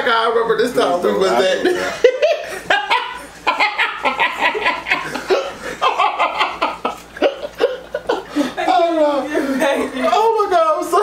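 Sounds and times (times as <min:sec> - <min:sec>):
people laughing hard: 0:01.6 - 0:10.1.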